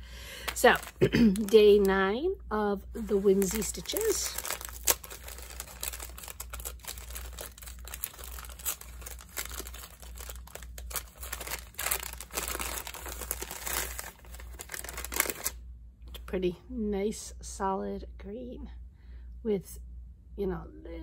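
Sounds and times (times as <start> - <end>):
wrapping crinkling and tearing: 0.4 - 2.0, 3.0 - 15.6.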